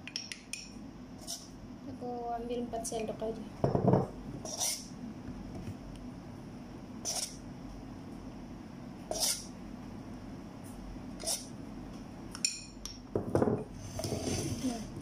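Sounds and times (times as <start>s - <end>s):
metal spoon scraping mixing bowl: 4.4s - 4.9s, 7.0s - 7.4s, 9.1s - 9.5s, 11.2s - 11.5s.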